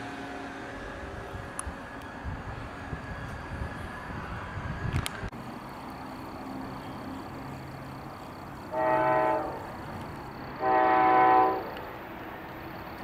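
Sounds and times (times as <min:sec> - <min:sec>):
diesel engines humming: 0:00.0 - 0:13.0
train air horn blasts: 0:08.7 - 0:09.8, 0:10.6 - 0:11.8.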